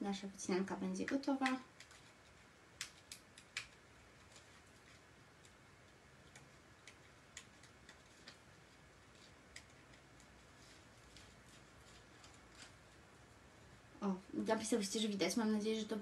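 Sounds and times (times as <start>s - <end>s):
small paper clicks: 1.3s - 13.0s.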